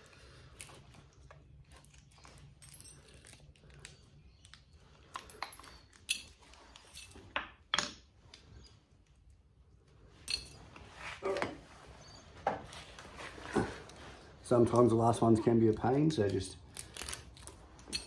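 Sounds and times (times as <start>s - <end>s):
copper wire clinking: 16.2s - 18.0s.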